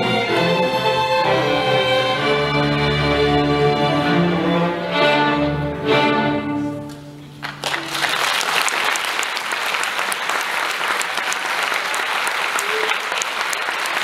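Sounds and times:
string orchestra playing: 0.0 - 8.1
audience applause: 7.4 - 14.0.

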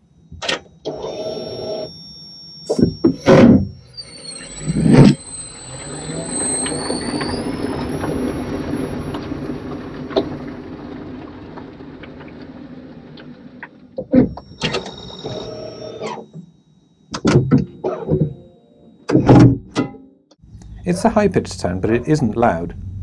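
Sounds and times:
electric motor whine: 0.0 - 18.6
low running rumble: 3.8 - 15.2, 20.4 - 23.0.

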